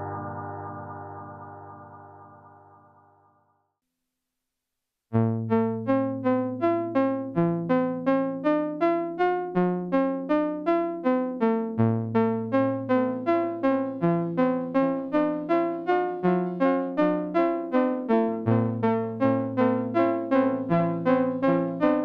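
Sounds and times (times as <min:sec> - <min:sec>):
low synthesizer note: 0:00.0 - 0:03.4
synthesizer arpeggio: 0:00.0 - 0:03.5.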